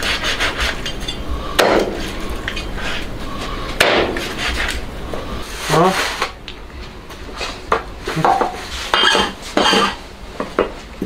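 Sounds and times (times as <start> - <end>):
cleaver scraping metal bowls: 0.0 - 1.4, 8.1 - 10.1.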